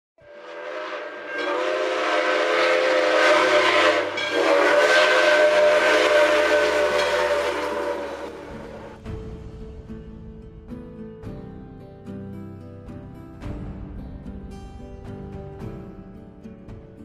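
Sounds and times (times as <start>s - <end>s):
steam locomotive chime whistle: 0.2s - 9.1s
steam hissing: 0.5s - 9.0s.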